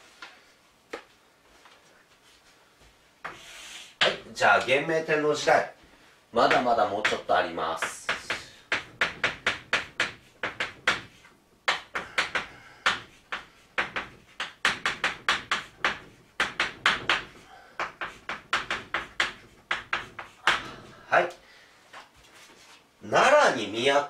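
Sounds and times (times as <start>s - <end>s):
chalk tapping and scraping on blackboard: 3.2s - 4.7s, 6.4s - 20.7s.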